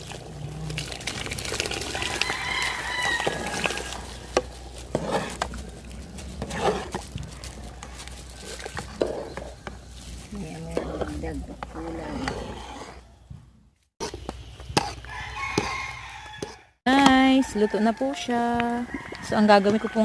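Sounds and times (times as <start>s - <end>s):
metal ladle scraping a pot: 0.0s - 13.2s, 14.0s - 16.6s
rooster crowing: 1.9s - 4.1s, 15.0s - 20.0s.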